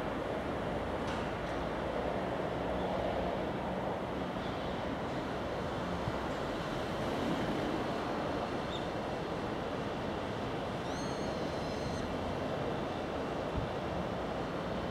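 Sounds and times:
road and wind noise: 0.0s - 14.9s
short high squeal: 10.8s - 12.1s.

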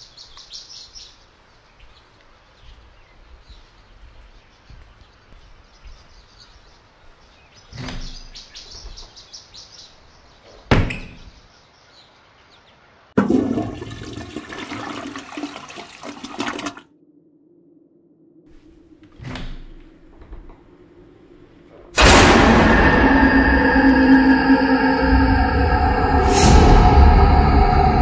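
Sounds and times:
loud rushing water: 13.2s - 16.8s
sharp bang: 22.0s - 28.0s.

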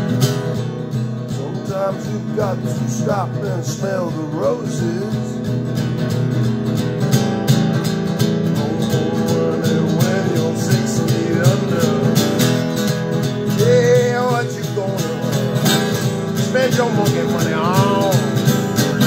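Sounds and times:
guitar strumming: 0.0s - 19.0s
wordless vocal: 1.3s - 5.4s, 8.6s - 12.6s, 13.5s - 18.5s.

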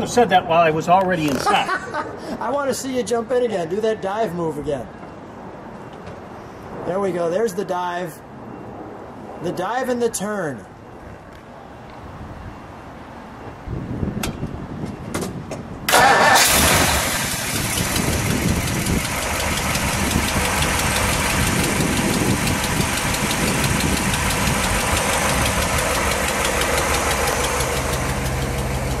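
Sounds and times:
car engine idling: 15.9s - 29.0s
car engine starting: 15.9s - 29.0s.

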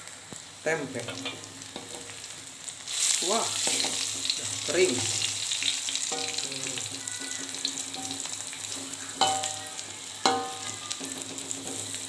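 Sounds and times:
food sizzling in a wok: 0.0s - 12.0s
spatula clinking against pan: 6.1s - 6.5s, 9.2s - 11.8s.

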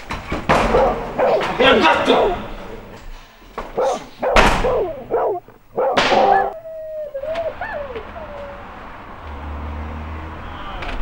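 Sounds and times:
dog barking: 0.5s - 2.8s, 3.7s - 8.5s
dog whining: 0.6s - 2.8s, 3.7s - 8.9s.

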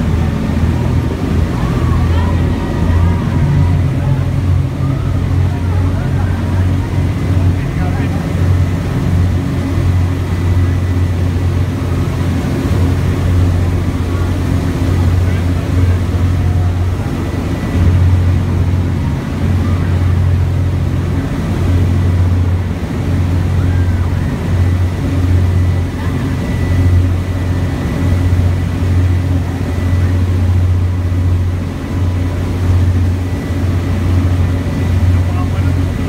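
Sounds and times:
ferry engine low drone: 0.0s - 36.0s
propeller wake rushing: 0.0s - 36.0s
wind: 0.0s - 36.0s.

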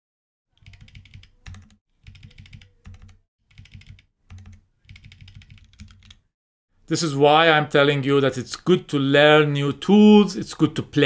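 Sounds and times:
typing on computer keyboard: 0.6s - 6.2s.

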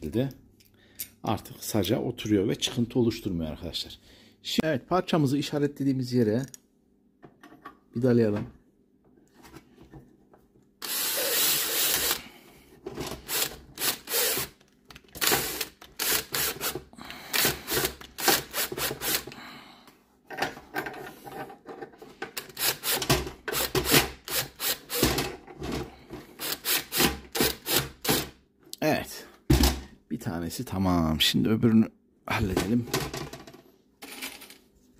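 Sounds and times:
drill driving a screw: 10.8s - 12.2s, 13.2s - 14.6s, 15.2s - 19.3s, 22.5s - 25.2s, 26.4s - 28.3s.

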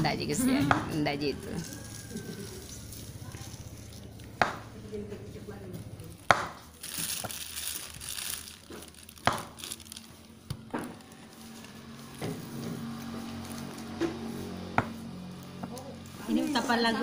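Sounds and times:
rustling: 6.1s - 14.6s.

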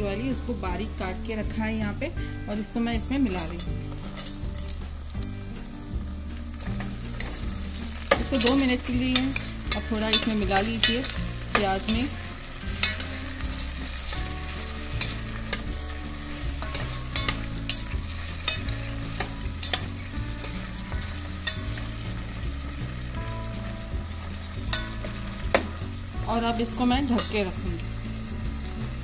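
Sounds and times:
vegetables sizzling in oil: 0.0s - 29.0s
metal spoon scraping pot: 3.4s - 4.8s, 6.6s - 22.3s.

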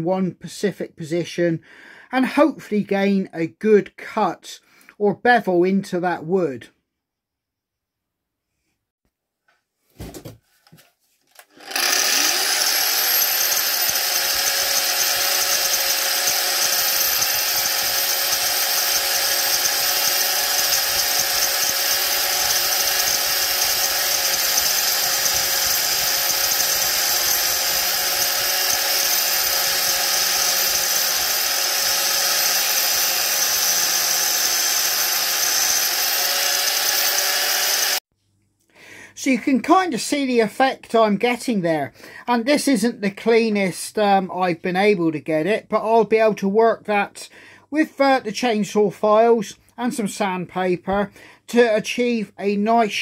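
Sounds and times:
angle grinder whining: 11.4s - 38.0s.

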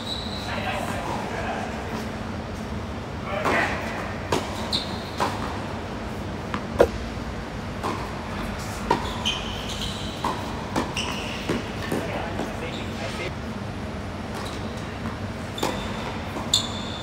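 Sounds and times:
tennis balls struck by rackets: 6.5s - 7.0s
shoes squeaking on court: 8.9s - 11.7s.

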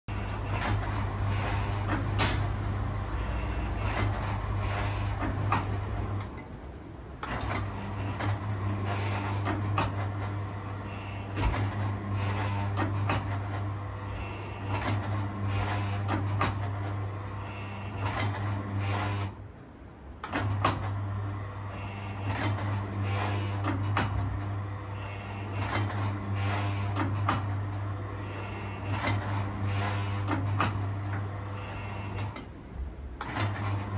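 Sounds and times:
electric motor humming: 0.1s - 6.2s, 10.4s - 19.3s, 20.8s - 32.4s
mechanism clicking and clattering: 0.1s - 19.4s, 20.2s - 33.9s.

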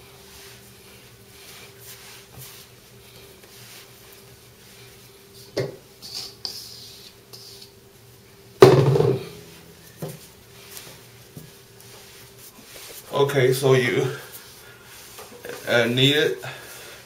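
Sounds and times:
hands kneading dough: 0.0s - 8.5s, 9.2s - 16.8s
dough thump on board: 8.6s - 9.4s.

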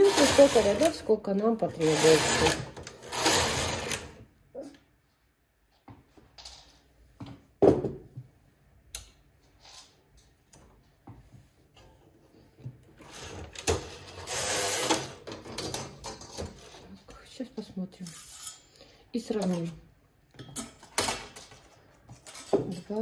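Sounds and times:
knitting machine carriage run: 0.0s - 1.1s, 1.7s - 4.2s, 13.0s - 16.8s.

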